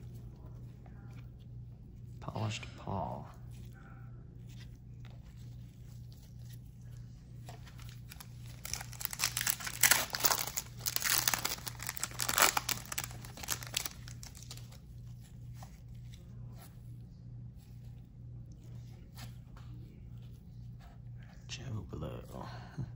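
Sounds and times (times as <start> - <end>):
foil wrapper crinkling and tearing: 5.8 - 15.2.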